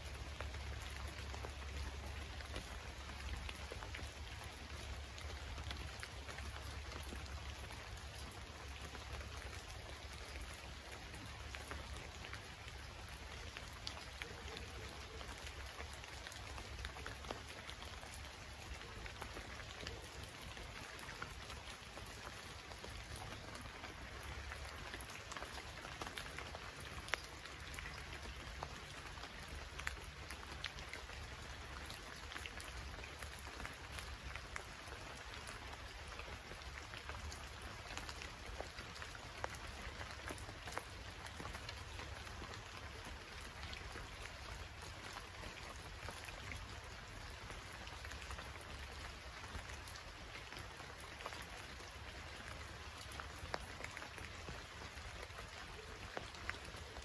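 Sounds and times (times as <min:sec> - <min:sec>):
raindrops ticking close by: 0:00.0 - 0:57.0
steady rain hiss: 0:00.0 - 0:57.0.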